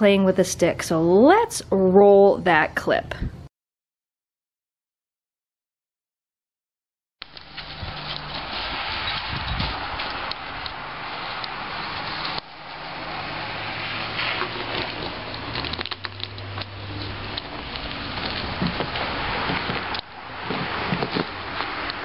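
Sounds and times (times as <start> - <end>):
dog chewing wooden stick: 10.0 - 22.0.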